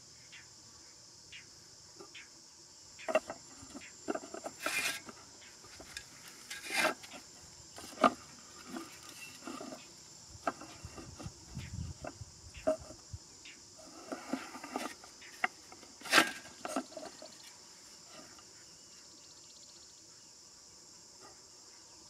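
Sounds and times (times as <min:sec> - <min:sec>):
high insect drone: 0:00.0 - 0:22.0
hands rustling bamboo and plastic: 0:03.1 - 0:13.0, 0:13.8 - 0:18.5
rustling scrape: 0:03.1 - 0:13.0, 0:13.8 - 0:18.5.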